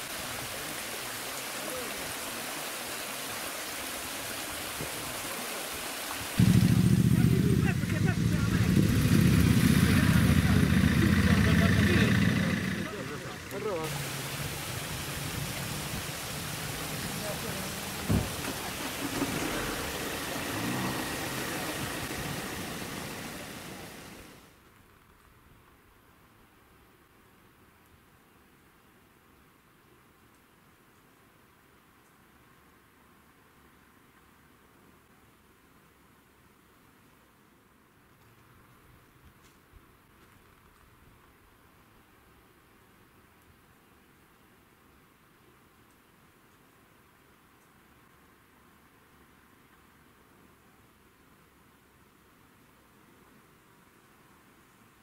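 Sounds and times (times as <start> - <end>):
stream water rushing: 0.0 - 24.6
low hum: 6.4 - 13.5.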